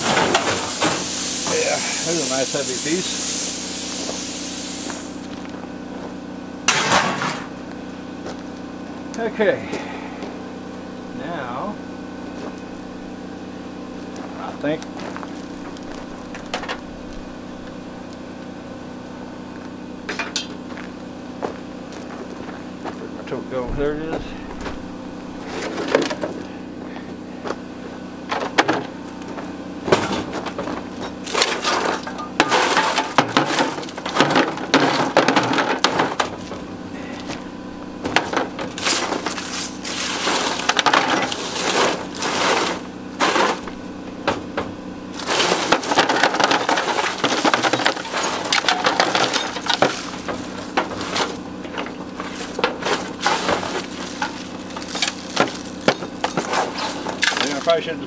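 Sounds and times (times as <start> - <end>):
stones clinking on metal: 45.2 - 57.9.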